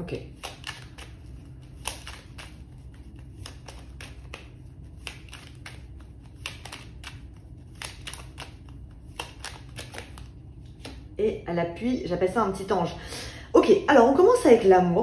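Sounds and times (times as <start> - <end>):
cards shuffling: 0.3 - 11.1.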